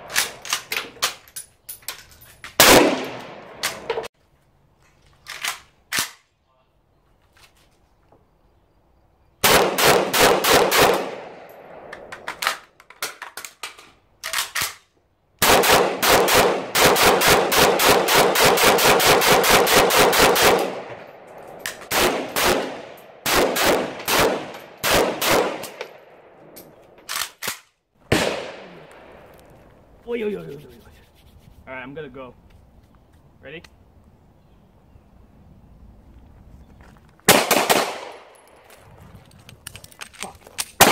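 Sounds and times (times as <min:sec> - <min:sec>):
rifle shots with echo: 0:02.6 - 0:04.1, 0:09.4 - 0:12.0, 0:15.4 - 0:26.4, 0:28.1 - 0:29.2, 0:37.3 - 0:38.4.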